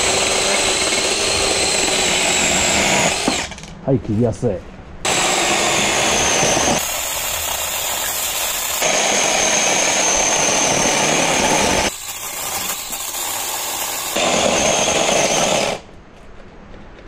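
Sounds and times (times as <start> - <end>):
electric chainsaw cutting branches: 0.0 - 3.8, 5.1 - 15.9.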